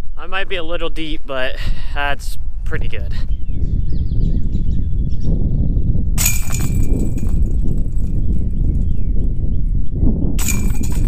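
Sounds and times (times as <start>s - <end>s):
wind rumble on microphone: 0.0s - 11.0s
disc golf chains jingling: 6.2s - 8.9s, 10.4s - 11.0s.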